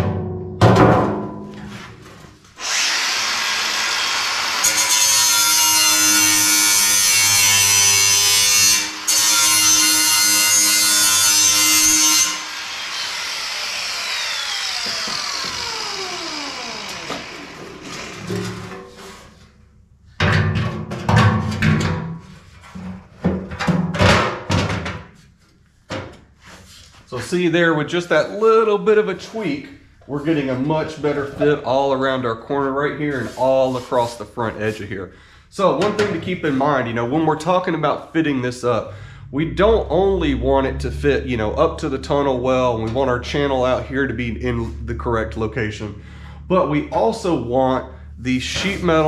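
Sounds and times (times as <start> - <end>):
sheet metal knocks and clunks: 0.0 - 1.7, 20.2 - 25.1
grinder spinning down whine: 2.6 - 18.6
angle grinder grinding steel: 2.6 - 19.2.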